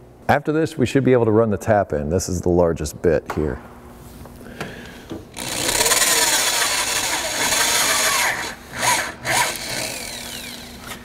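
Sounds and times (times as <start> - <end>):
power drill boring metal: 5.4 - 11.0.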